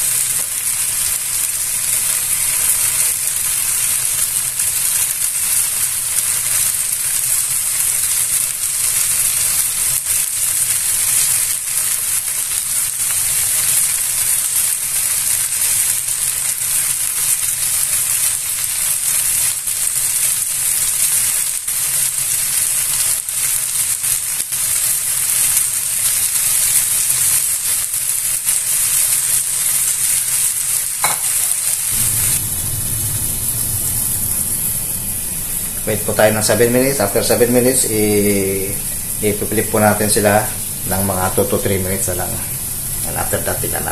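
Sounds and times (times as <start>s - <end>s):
meat sizzling in a skillet: 0.0s - 43.9s
low hum: 31.9s - 36.0s.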